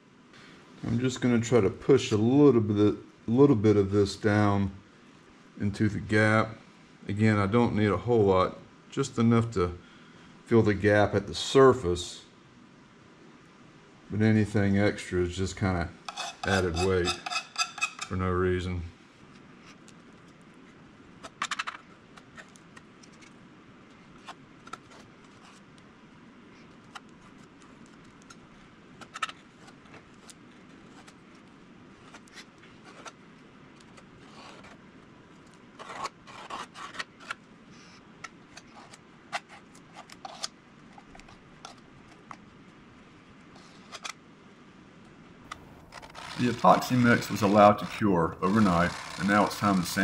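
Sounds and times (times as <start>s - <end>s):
faint steady hiss: 0.0s - 21.1s
metal spatula scraping: 16.0s - 18.2s, 45.8s - 50.0s.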